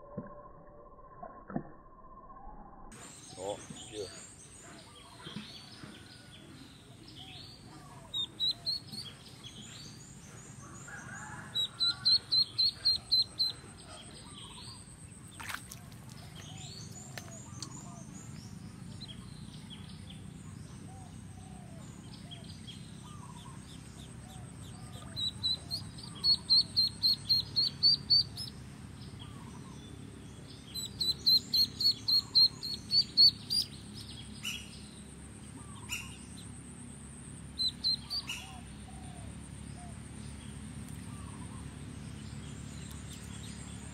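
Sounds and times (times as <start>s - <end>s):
duckling distress peeps: 8.0s - 9.2s, 11.5s - 13.7s, 24.4s - 28.6s, 30.8s - 33.7s.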